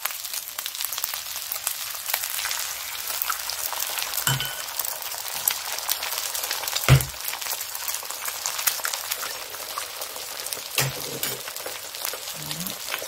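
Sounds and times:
eggs sizzling in frying pan: 0.0s - 13.0s
egg cracking knock: 6.9s - 7.2s.

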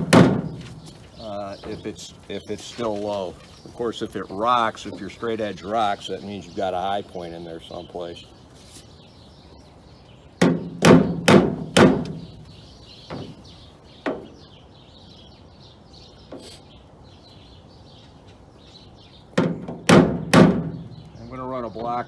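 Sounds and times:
metal dolly knocking on sheet metal: 0.0s - 0.6s, 10.4s - 12.3s, 19.4s - 20.8s.

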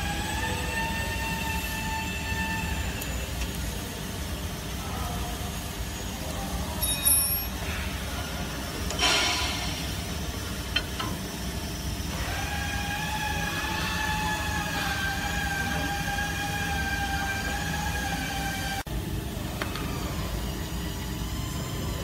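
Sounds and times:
high metallic clink: 6.7s - 7.8s
metallic scrape: 9.0s - 10.1s.

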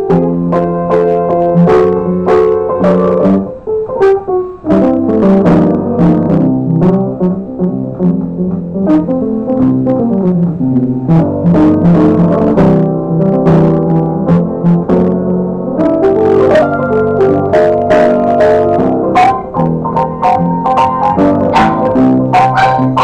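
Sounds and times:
upright piano playing: 0.0s - 23.0s.

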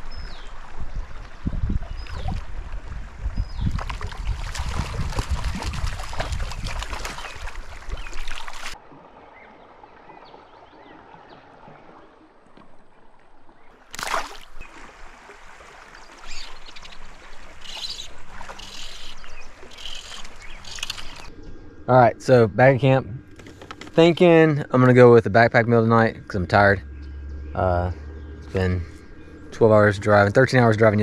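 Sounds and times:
water trickling: 0.0s - 10.9s, 11.5s - 31.0s
water splashes: 0.0s - 21.3s
creek water running: 0.0s - 31.0s.

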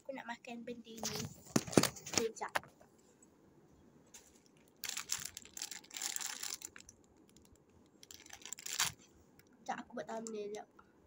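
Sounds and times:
plastic wrapper crinkling: 4.4s - 9.0s.

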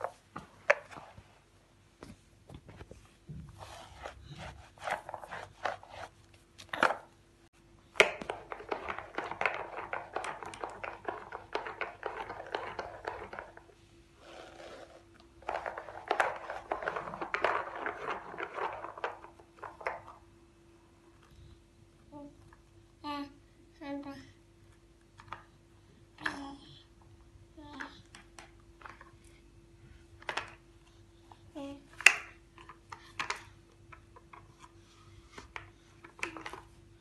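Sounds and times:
plastic roller brush clicking: 8.0s - 20.2s.

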